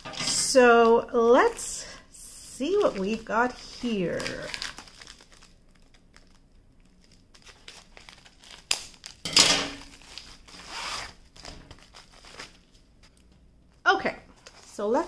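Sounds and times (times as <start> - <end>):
plastic bag crinkling: 2.6 - 13.3.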